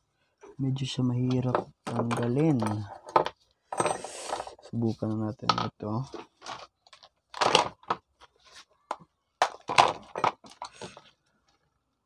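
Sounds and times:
hand tools clattering on wooden bench: 1.2 - 4.5, 8.9 - 11.0.

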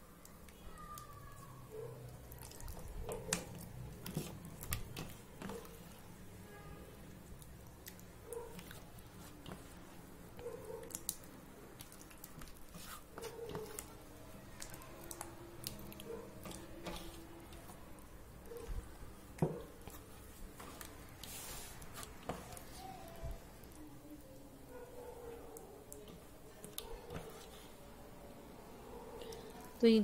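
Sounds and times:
hands squelching marinade: 2.0 - 6.2, 7.0 - 23.9.

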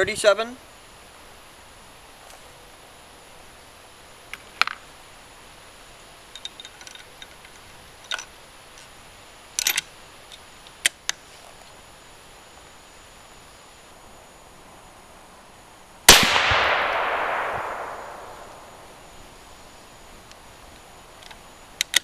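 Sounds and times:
small ticks: 20.3 - 22.0.

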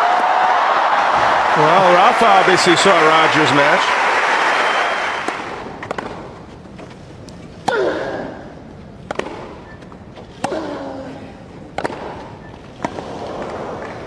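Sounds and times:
crowd noise: 0.0 - 6.4
racket hitting tennis ball: 5.2 - 6.4, 9.0 - 9.6, 11.7 - 13.0.

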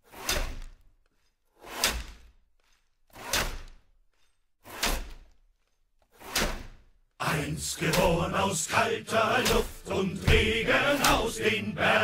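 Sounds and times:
ice saw cutting through ice: 0.0 - 6.7.

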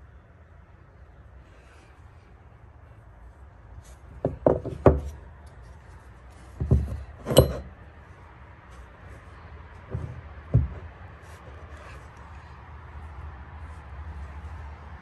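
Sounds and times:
sharp knocks: 9.9 - 10.9.

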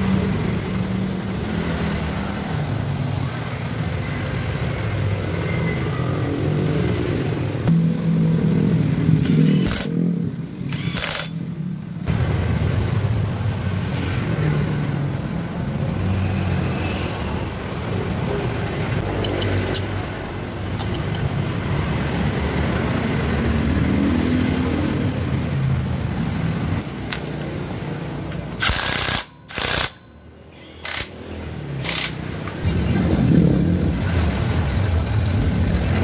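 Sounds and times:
low vehicle engine rumble: 32.6 - 36.0.

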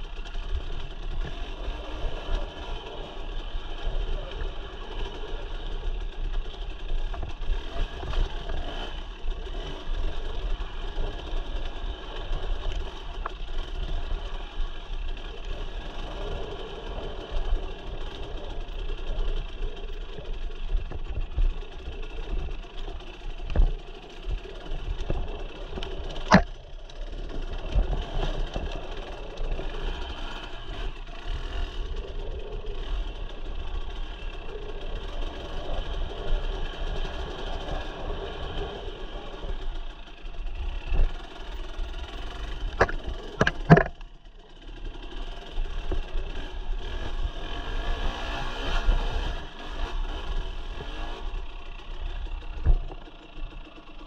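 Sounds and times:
dirt bike engine running: 0.0 - 54.0
sharp knocks: 42.8 - 43.9.

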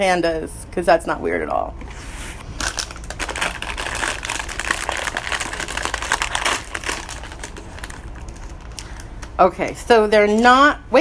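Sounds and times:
plastic wrapper crinkling: 2.6 - 9.8.

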